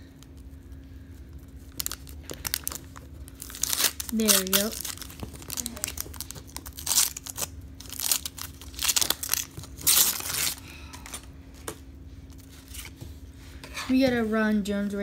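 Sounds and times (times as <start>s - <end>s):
paper wrapper tearing and crinkling: 1.6s - 11.3s.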